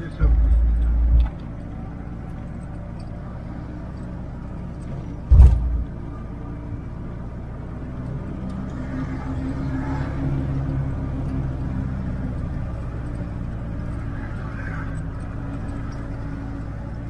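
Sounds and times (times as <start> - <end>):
engine running with low hum: 0.0 - 17.0
heavy low thump: 5.3 - 6.0.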